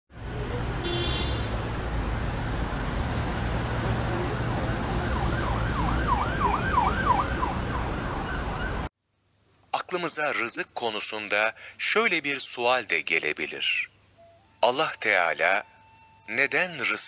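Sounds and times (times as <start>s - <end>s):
traffic rumble: 0.1s - 8.9s
emergency siren yelping: 3.8s - 8.9s, 14.2s - 17.0s.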